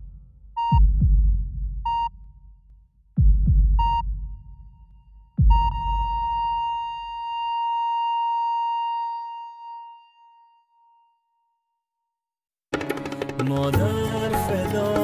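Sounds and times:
deep heartbeat thump: 0.0 - 2.6, 3.2 - 6.8
steady high monitor beep: 0.6 - 0.9, 1.9 - 2.3, 3.8 - 4.2, 5.4 - 10.6.

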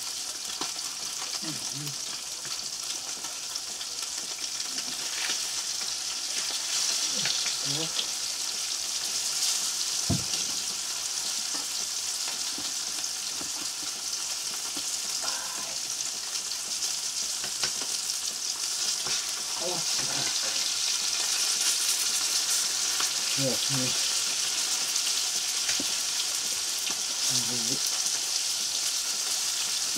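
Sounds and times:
fish sizzling in hot oil: 0.0 - 29.9
dull knock: 10.1 - 10.5.

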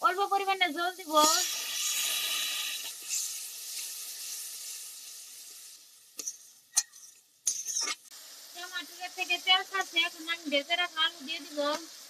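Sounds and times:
sizzling in hot oil: 0.0 - 12.0
metal spatula scraping a pan: 1.1 - 8.1.

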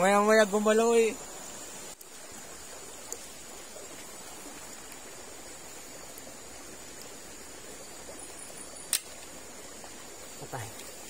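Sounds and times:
faint tick: 1.9 - 2.1.

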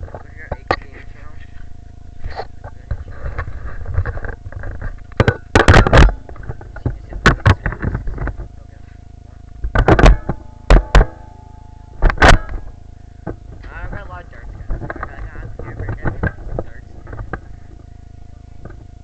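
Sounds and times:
faint steady hum: 0.0 - 19.0
camera knocks and bumps: 2.7 - 8.5, 9.6 - 11.2, 12.0 - 14.0, 14.6 - 17.5.

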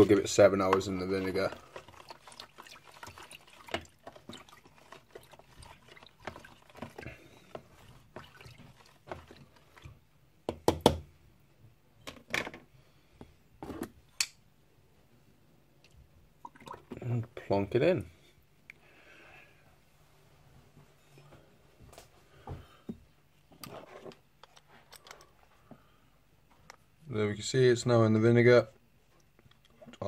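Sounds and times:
fork stirring liquid in plastic tub: 0.0 - 10.6, 23.5 - 24.3.

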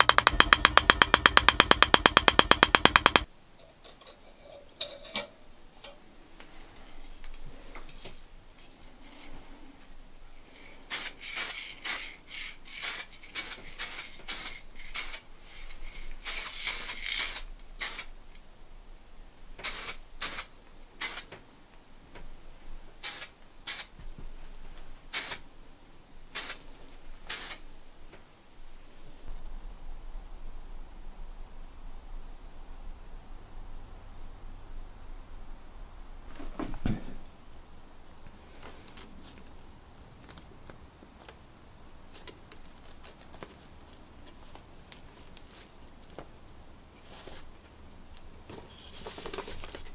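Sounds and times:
spray-paint can hissing: 12.8 - 15.2, 16.2 - 18.1, 19.6 - 21.3, 23.0 - 23.9, 25.1 - 25.4, 26.4 - 26.6, 27.3 - 27.6.

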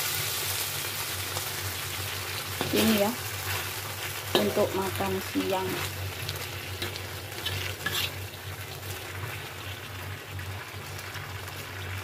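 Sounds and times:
food sizzling in a wok: 0.0 - 12.0
metal spatula scraping: 2.6 - 6.0, 6.6 - 8.3.

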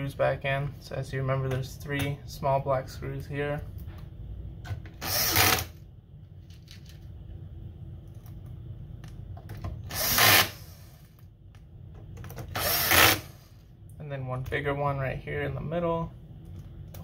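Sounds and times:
cordless drill driving screws: 5.0 - 5.7, 9.9 - 11.0, 12.5 - 13.5.

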